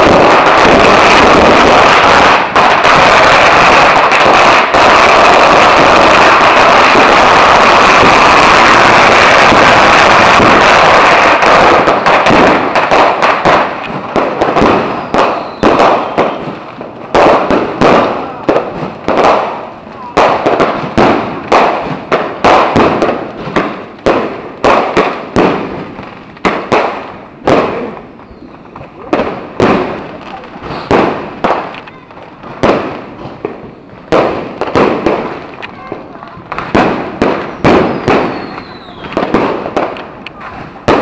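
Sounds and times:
firecrackers crackling: 0.0s - 41.0s
firework bangs: 0.0s - 41.0s.

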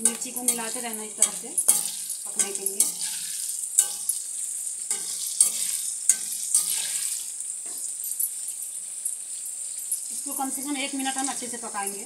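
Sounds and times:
spatula scraping pan: 0.0s - 8.0s
chillies sizzling in hot oil: 0.0s - 12.0s.

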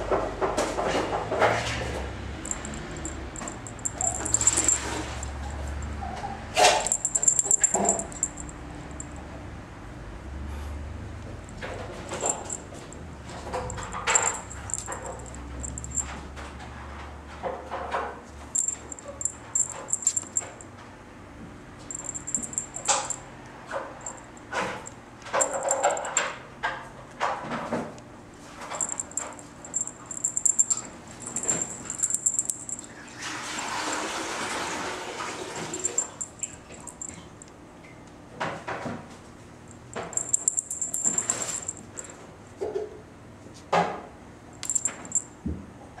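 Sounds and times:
faint high jingling: 2.4s - 9.3s, 12.0s - 16.2s, 18.6s - 20.7s, 21.9s - 23.3s, 24.0s - 26.2s, 28.7s - 34.2s, 35.6s - 37.5s, 39.7s - 42.1s, 44.6s - 45.4s.

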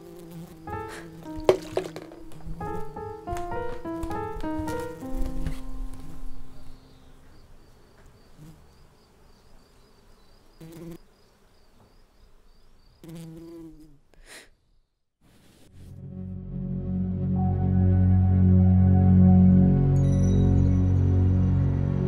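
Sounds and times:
honeybee buzzing: 0.0s - 14.1s
music: 0.5s - 7.2s, 15.7s - 22.0s.

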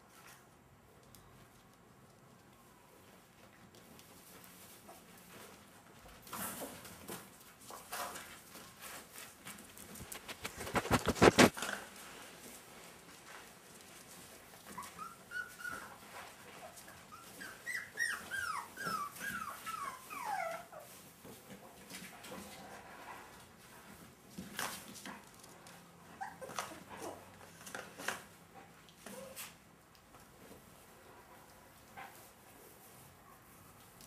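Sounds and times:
rapid clicking and scuffling: 3.4s - 14.4s
puppies whimpering: 14.7s - 16.0s, 17.0s - 20.9s.

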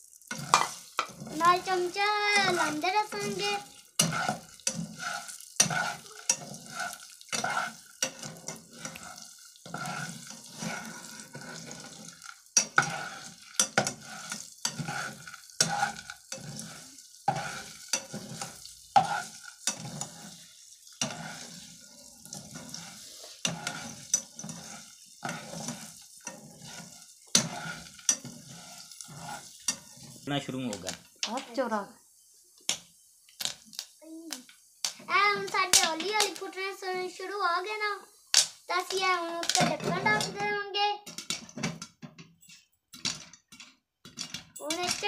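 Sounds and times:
kernels rattling and sizzling: 0.0s - 45.0s
metal spatula scraping saucepan: 0.3s - 30.3s, 38.9s - 41.7s.

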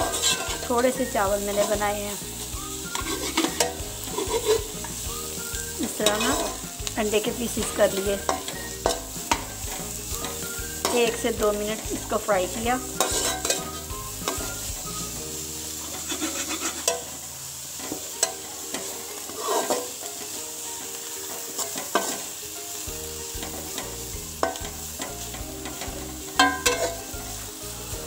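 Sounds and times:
spatula scraping and knocking pan: 0.0s - 15.2s, 15.8s - 17.2s, 17.8s - 22.4s, 23.2s - 27.3s
food sizzling in a pan: 0.0s - 28.0s.

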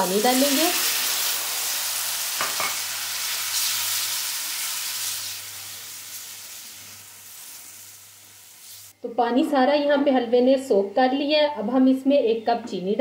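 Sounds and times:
water sizzling in hot pan: 0.0s - 9.0s.

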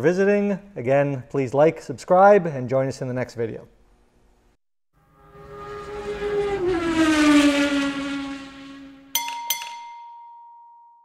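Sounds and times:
car engine passing by: 5.0s - 9.2s
bright chime ringing: 9.2s - 11.0s.

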